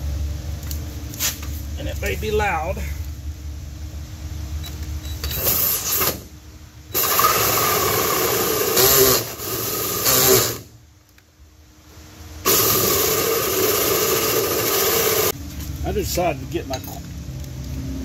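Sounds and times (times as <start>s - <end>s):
drill cutting sheet metal: 5.3s - 6.2s, 6.9s - 10.7s, 12.5s - 15.3s.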